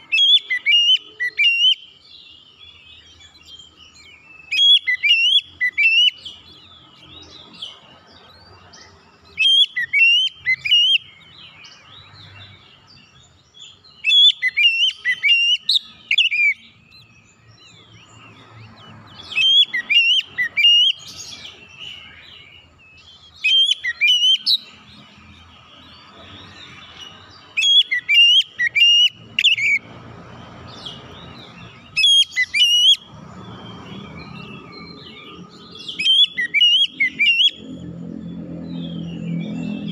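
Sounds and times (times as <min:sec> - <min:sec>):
bird calling in shrill whistles: 0:00.0 - 0:02.0, 0:03.4 - 0:06.4, 0:09.4 - 0:11.1, 0:14.0 - 0:16.7, 0:19.2 - 0:22.6, 0:23.2 - 0:24.8, 0:27.5 - 0:29.8, 0:32.0 - 0:33.1, 0:35.8 - 0:37.6.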